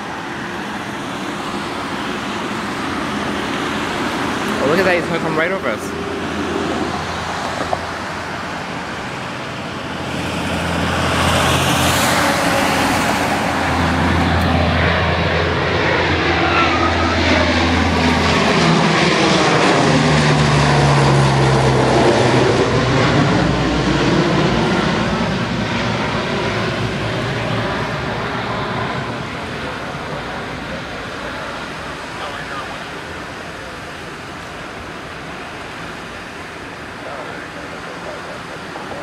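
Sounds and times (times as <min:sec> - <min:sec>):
turboprop aircraft propeller drone: 0:00.0 - 0:39.0.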